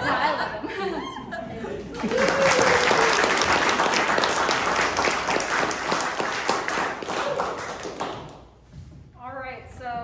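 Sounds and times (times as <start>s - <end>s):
hands clapping: 1.8s - 8.6s.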